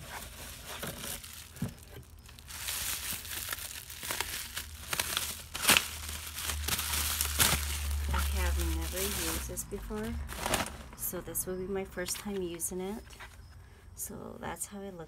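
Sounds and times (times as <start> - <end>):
plastic packaging crinkling: 0.0 - 11.1.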